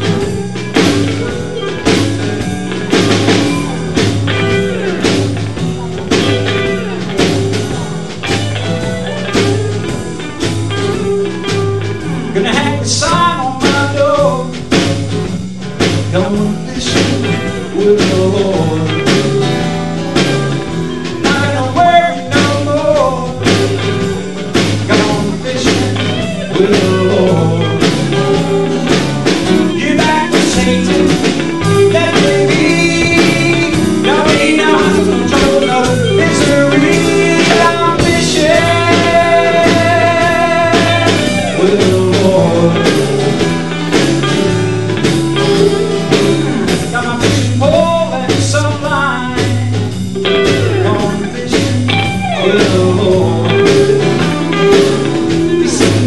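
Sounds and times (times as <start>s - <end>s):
acoustic guitar: 0.0s - 56.0s
drum kit beat: 0.0s - 56.0s
electric bass: 0.0s - 56.0s
electric guitar lead: 0.0s - 56.0s.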